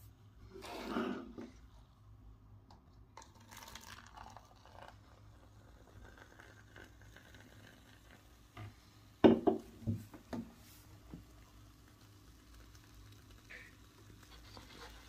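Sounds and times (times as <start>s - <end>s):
cola pouring into plastic cup: 2.7s - 8.8s, 11.0s - 15.0s
can knocking on table: 9.2s - 10.5s.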